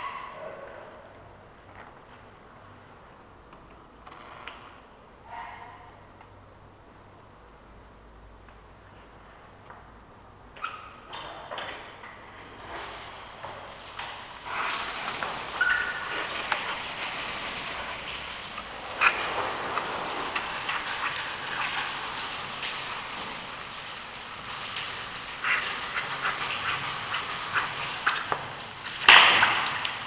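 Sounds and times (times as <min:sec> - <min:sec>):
water spraying from a shower head: 0:12.7 - 0:30.0.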